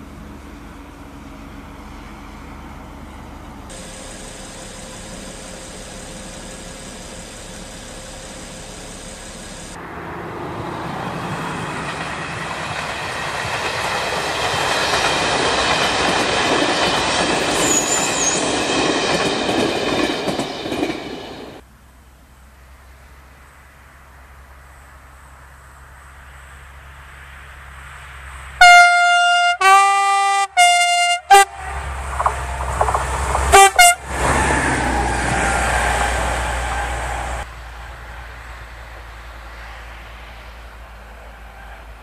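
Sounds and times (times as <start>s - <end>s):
diesel locomotive engine whining: 0.0s - 21.6s, 28.6s - 40.0s
train passing with wheel clatter: 0.0s - 21.6s, 30.6s - 42.0s.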